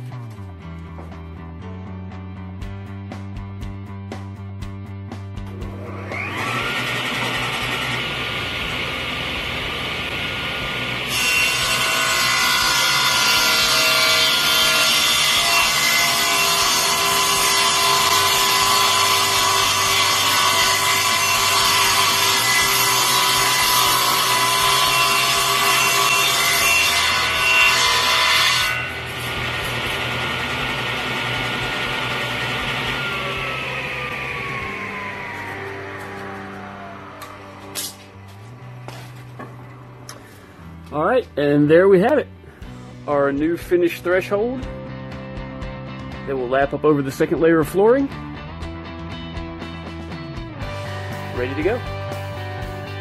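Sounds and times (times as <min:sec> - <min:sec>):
table saw running: 0:05.5 - 0:40.2
saw ripping through wood: 0:05.6 - 0:38.1.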